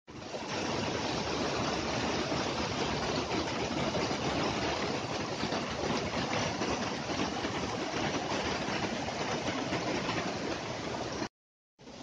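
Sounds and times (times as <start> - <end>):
stream rushing over rocks: 0.1 - 12.0.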